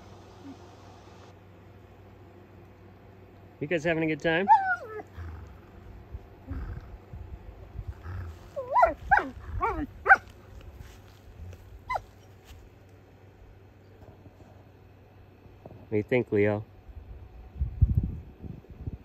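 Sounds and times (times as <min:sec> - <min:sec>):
dog whining yips: 0:04.5 - 0:05.2, 0:08.1 - 0:10.2, 0:11.9 - 0:12.3.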